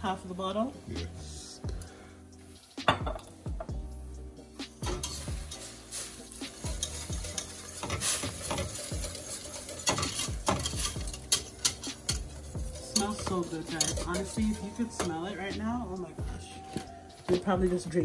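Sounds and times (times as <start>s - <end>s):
whisk scraping a metal pot: 4.7s - 15.6s.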